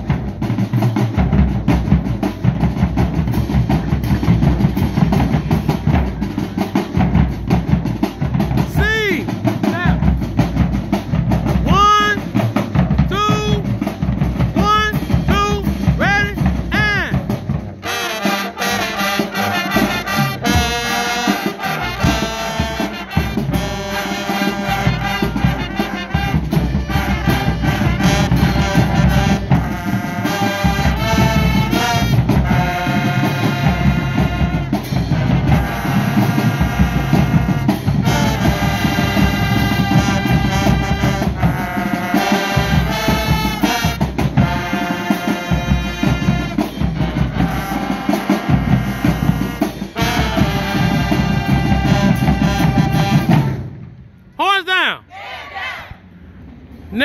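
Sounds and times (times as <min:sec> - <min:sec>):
marching band drums: 0:00.0 - 0:55.0
brass section playing tune: 0:11.5 - 0:53.7.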